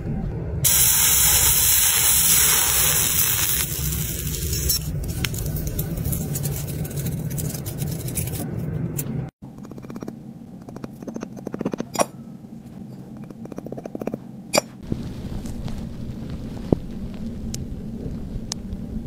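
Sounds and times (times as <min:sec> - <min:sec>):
molten metal hissing: 0:00.6 - 0:06.4.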